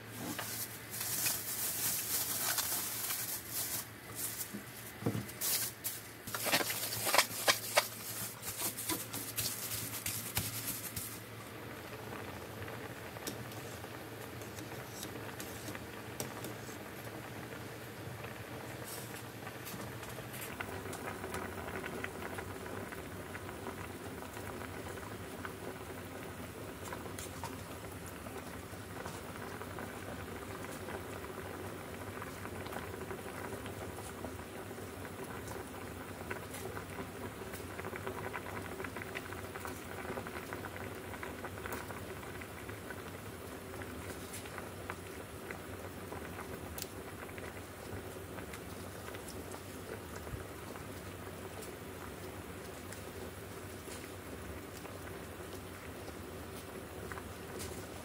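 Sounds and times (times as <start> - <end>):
pot of liquid boiling: 0.0 - 58.0.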